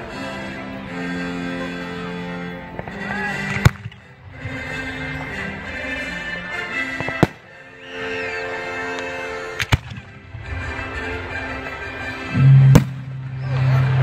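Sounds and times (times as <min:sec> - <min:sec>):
music with sustained tones: 0:00.0 - 0:14.0
fireworks bursting with bangs: 0:07.0 - 0:07.4.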